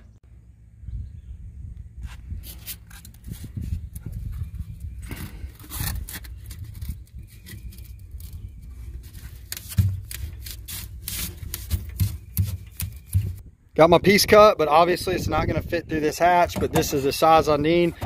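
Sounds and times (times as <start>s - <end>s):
foam board being cut: 5.1s - 7.0s, 9.4s - 13.4s.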